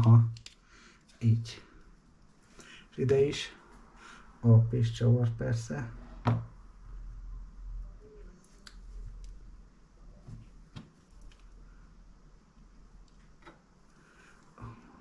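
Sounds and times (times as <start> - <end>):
faint clicks of plastic parts: 0.0 - 2.7, 10.2 - 11.8, 12.5 - 14.8
low steady hum: 0.0 - 15.0.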